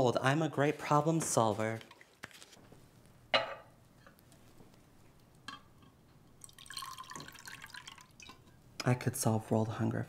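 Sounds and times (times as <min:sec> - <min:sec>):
drink pouring into glass: 0:06.4 - 0:08.5.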